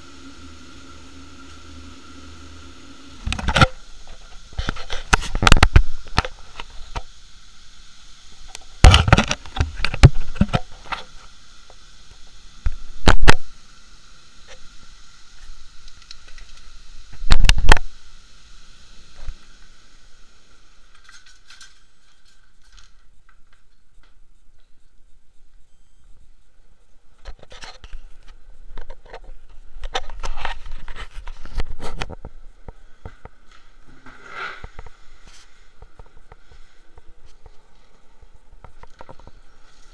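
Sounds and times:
noise bursts hitting microphone: 0.0 - 21.1
heavy rain hissing: 0.0 - 22.7, 29.4 - 39.9.

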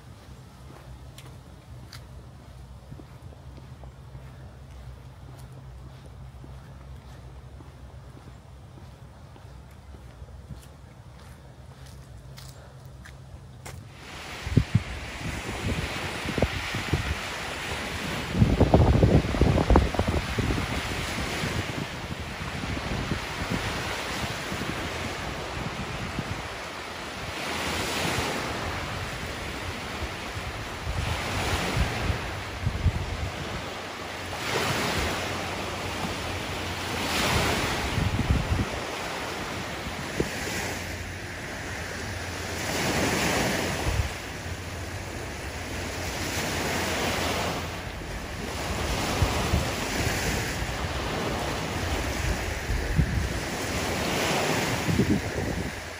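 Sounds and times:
wind rumble on microphone: 0.0 - 55.9
waves breaking on beach: 13.7 - 55.9.

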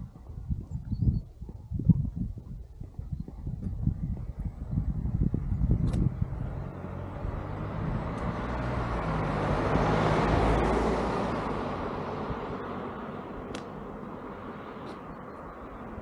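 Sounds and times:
car driving past: 5.3 - 15.5.

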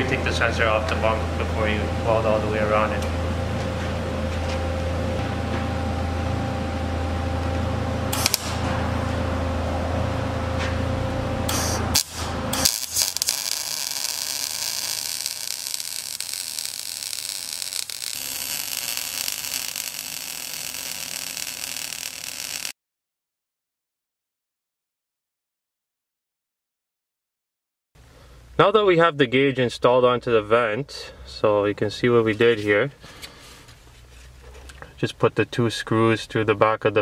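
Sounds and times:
steady low hum: 0.0 - 22.7
welder arc crackling and hissing: 8.1 - 9.2, 11.4 - 22.8.

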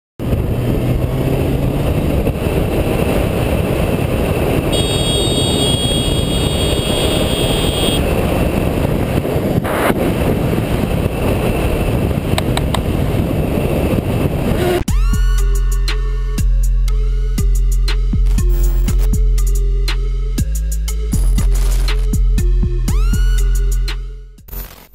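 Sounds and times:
motorcycle engine: 0.2 - 10.3
wind rush: 0.2 - 14.9
high-pitched tone: 4.7 - 8.0.

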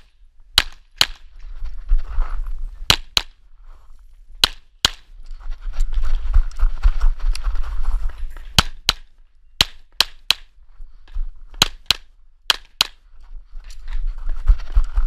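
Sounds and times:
low rumbling movement noise: 13.1 - 15.0.

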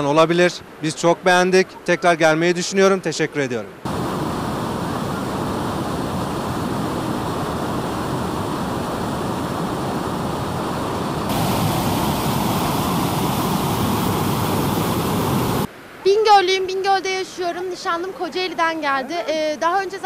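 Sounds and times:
stream pouring over boulders: 3.8 - 15.7
waterfall rushing: 3.8 - 15.7.

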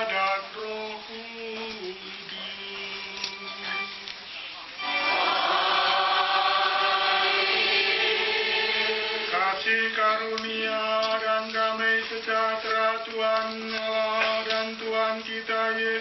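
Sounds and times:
choir singing a held chord: 4.8 - 10.0.

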